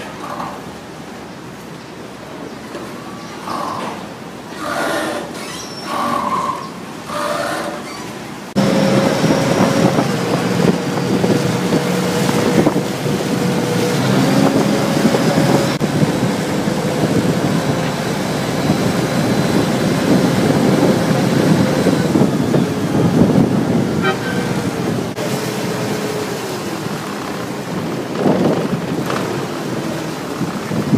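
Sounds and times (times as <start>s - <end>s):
rushing water: 0.0s - 30.9s
boat engine running: 5.8s - 30.9s
wind on microphone: 8.6s - 30.9s.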